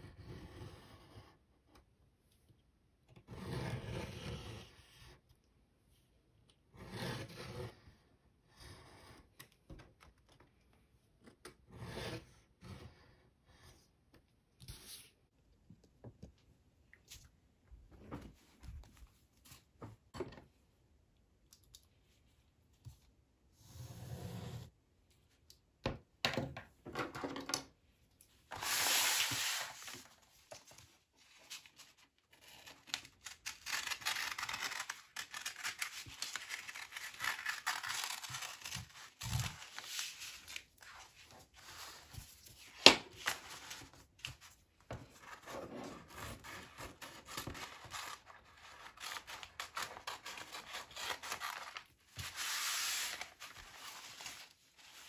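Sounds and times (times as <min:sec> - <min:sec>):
paper rustling on wooden table: 0:28.5 - 0:55.0
scissors snipping paper: 0:32.4 - 0:40.2, 0:46.2 - 0:53.2.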